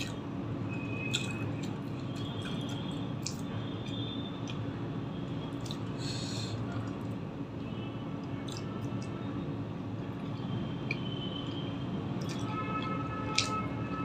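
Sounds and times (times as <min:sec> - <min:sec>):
chewing mouth sounds: 0:01.0 - 0:04.7, 0:05.4 - 0:07.2, 0:08.2 - 0:09.2, 0:10.1 - 0:13.6.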